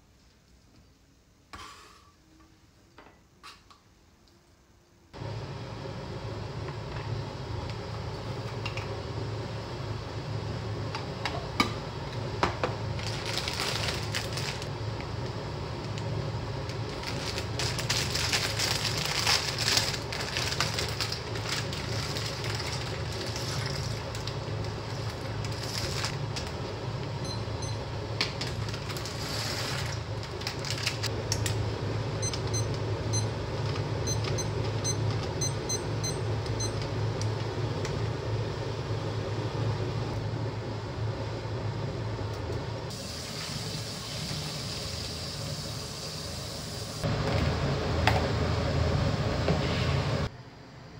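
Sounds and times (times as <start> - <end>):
dry pasta pouring rattle: 16.9 - 26.1.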